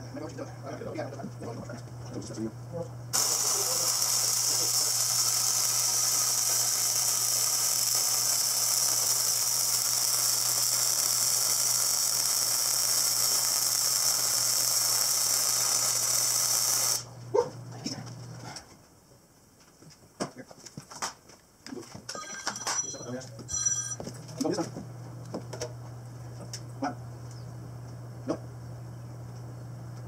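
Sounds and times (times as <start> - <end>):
welding arc hissing: 3.1 - 17.2.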